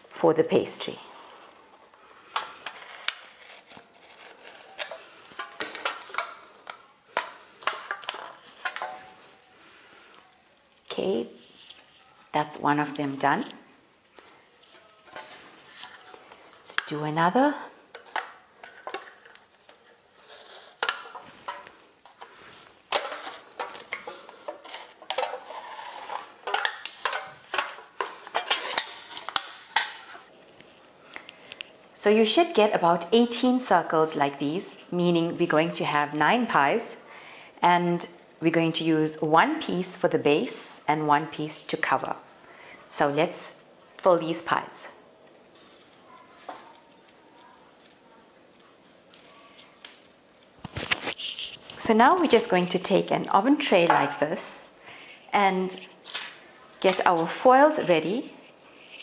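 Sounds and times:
knife clicking and scraping on foil: 0:01.4 - 0:12.4, 0:14.0 - 0:16.9, 0:17.9 - 0:30.3, 0:45.2 - 0:51.8.

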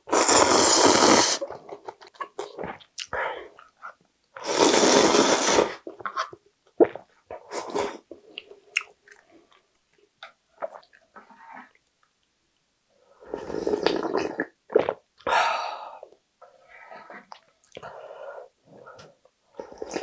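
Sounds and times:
loud slurp from a bowl: 0:00.1 - 0:01.5, 0:04.4 - 0:05.8, 0:13.3 - 0:14.5
wet chewing and swallowing: 0:01.5 - 0:04.0, 0:08.1 - 0:12.4.

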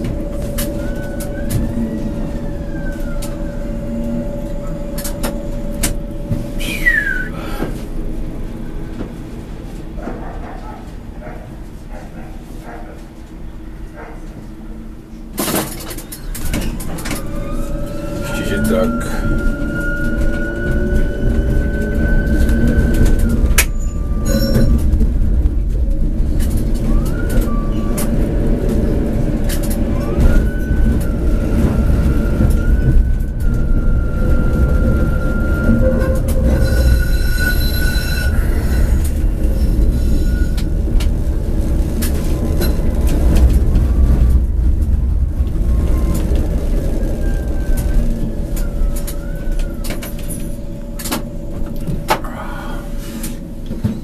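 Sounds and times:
tram electric drive whining: 0:00.0 - 0:54.0
wheels squealing on rails: 0:00.0 - 0:54.0
wheels clicking over rail joints: 0:15.3 - 0:52.3.

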